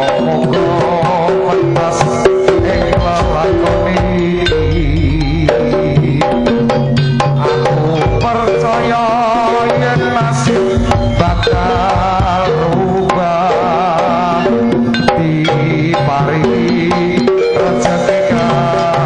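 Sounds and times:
hand-drum strokes: 0:00.0 - 0:19.0
wavering melody line: 0:00.0 - 0:19.0
gong tones: 0:02.4 - 0:07.3.

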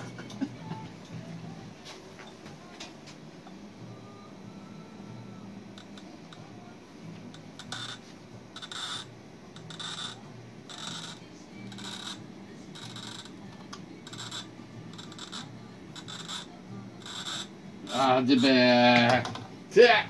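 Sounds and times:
glass bottle scoring rasps: 0:07.4 - 0:12.2, 0:12.8 - 0:19.3.

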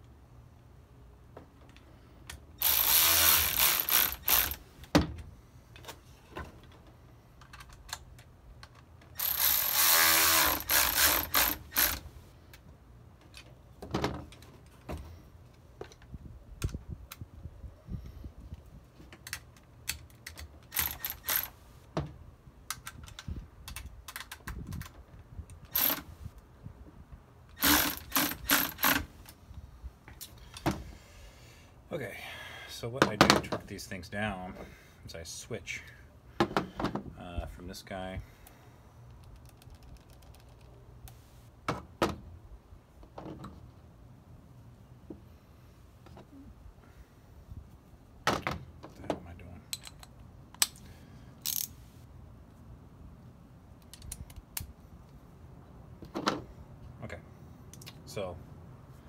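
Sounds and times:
cordless ratchet running: 0:02.6 - 0:04.6, 0:09.2 - 0:12.0, 0:20.7 - 0:21.6, 0:25.7 - 0:26.0, 0:27.6 - 0:29.1
clicks of bolts being handled: 0:04.0 - 0:09.4, 0:19.0 - 0:21.5, 0:48.4 - 0:51.8, 0:57.7 - 0:58.1.

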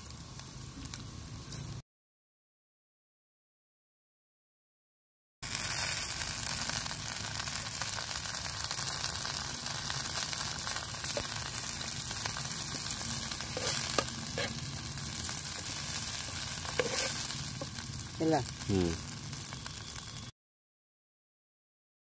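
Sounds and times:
vegetables sizzling in hot oil: 0:00.0 - 0:01.5, 0:05.4 - 0:20.3.

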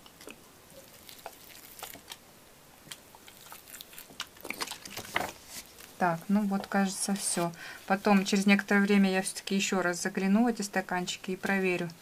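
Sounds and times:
soil crackling as water soaks in: 0:00.1 - 0:02.2.

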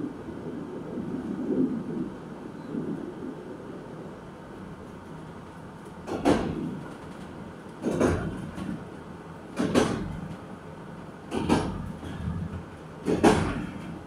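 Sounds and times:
train running rumble: 0:00.0 - 0:14.0
train wheels clacking over rail joints: 0:06.0 - 0:10.5, 0:11.2 - 0:14.0.

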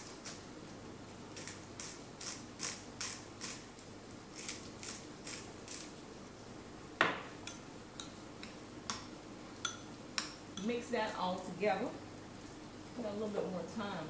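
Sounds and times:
spice grinder grinding: 0:01.3 - 0:06.0.

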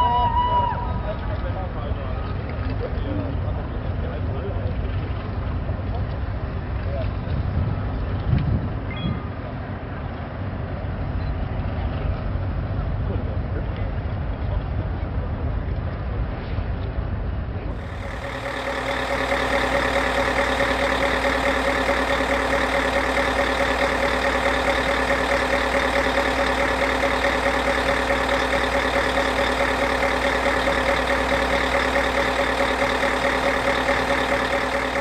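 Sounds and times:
steady engine drone: 0:17.7 - 0:35.0.

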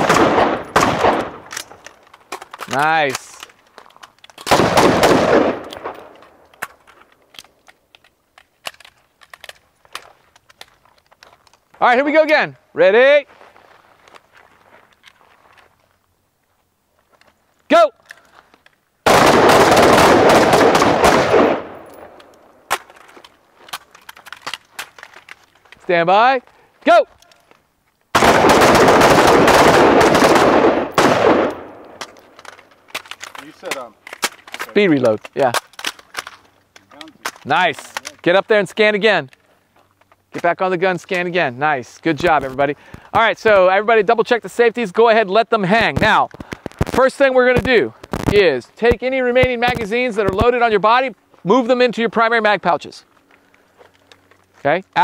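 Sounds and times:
rifle fire: 0:00.0 - 0:01.8, 0:04.4 - 0:06.4, 0:19.0 - 0:22.9, 0:28.1 - 0:32.2
rifles clicking during reloads: 0:00.1 - 0:12.4, 0:18.0 - 0:38.4.

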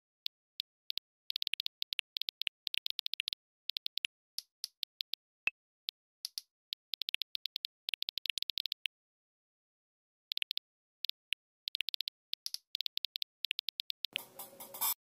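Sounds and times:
phone keyboard key clicks: 0:00.0 - 0:05.2.

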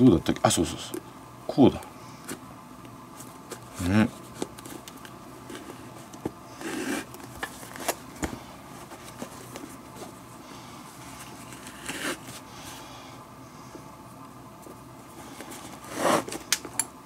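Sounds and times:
lace rubbing scrape: 0:06.6 - 0:07.2, 0:11.0 - 0:12.4, 0:15.8 - 0:16.4.

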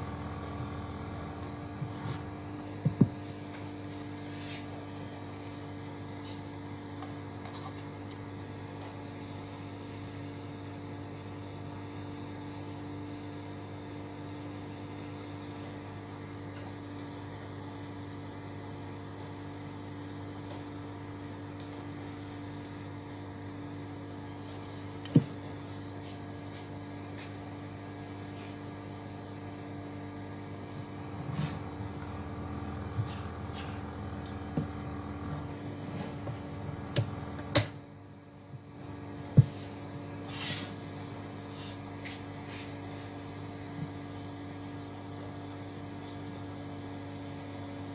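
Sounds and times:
cooling fan: 0:00.0 - 0:47.9
mains hum: 0:00.0 - 0:47.9
sharp click: 0:37.5 - 0:37.8.

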